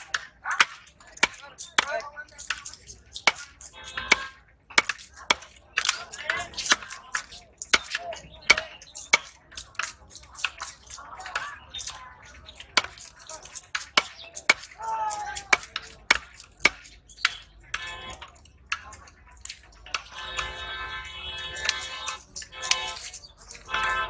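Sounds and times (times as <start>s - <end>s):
knife chopping on wooden block: 2.4s - 3.4s.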